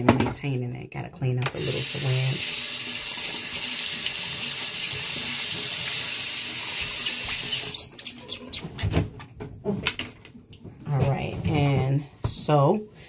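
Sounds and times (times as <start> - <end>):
items clicking and knocking: 8.1 - 12.0.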